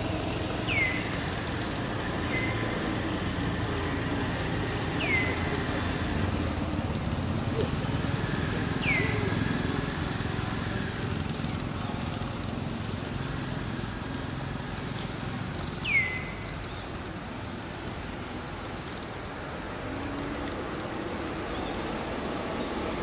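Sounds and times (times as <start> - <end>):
high downward-sweeping calls: 0.0 - 6.6, 7.2 - 11.3, 15.8 - 16.8
distant traffic rumble: 0.0 - 23.0.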